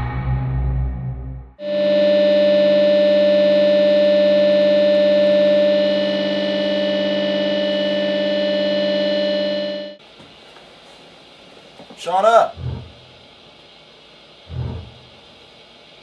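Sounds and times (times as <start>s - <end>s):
synthesizer drone: 0.0s - 10.0s, 12.5s - 13.5s, 14.4s - 15.3s.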